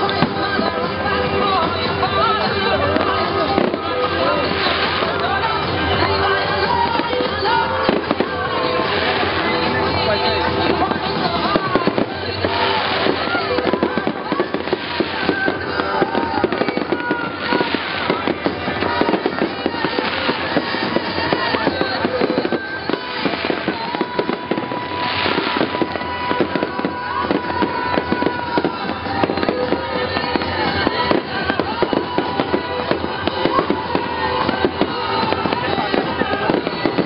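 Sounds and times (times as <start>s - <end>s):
fireworks bursting and crackling: 0.0s - 37.0s.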